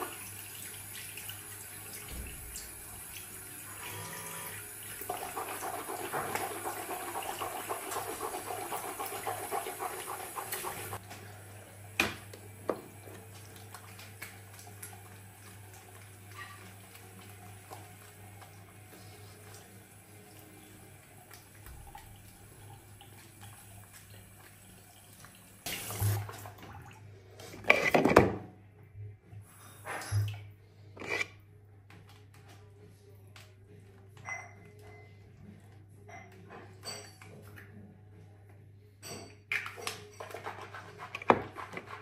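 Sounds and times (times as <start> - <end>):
running water: 0.0 - 27.2.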